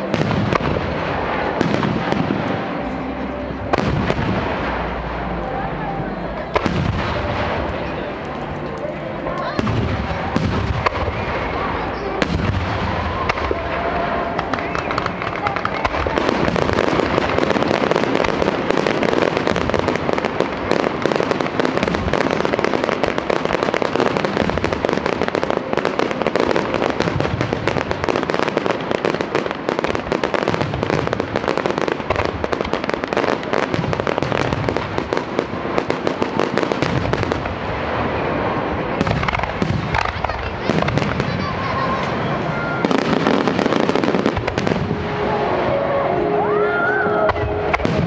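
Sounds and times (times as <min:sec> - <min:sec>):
low booms: 0:00.0 - 0:23.6, 0:30.0 - 0:46.4
firework crackling: 0:00.0 - 0:48.0.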